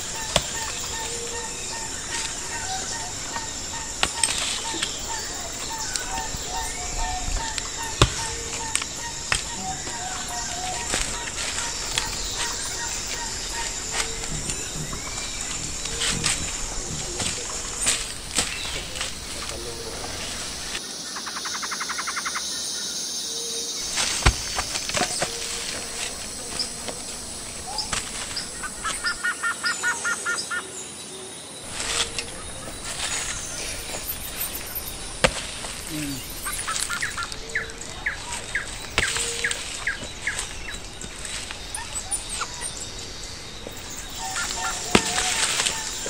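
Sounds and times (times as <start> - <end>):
birds chirping: 0.0 - 46.0
blade chopping wood: 8.0 - 10.0, 23.9 - 25.8, 44.9 - 45.8.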